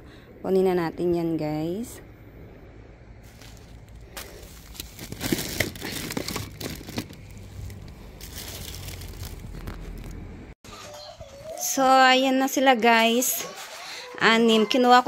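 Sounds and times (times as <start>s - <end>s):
plastic sacks crinkling and rustling: 3.2s - 10.2s.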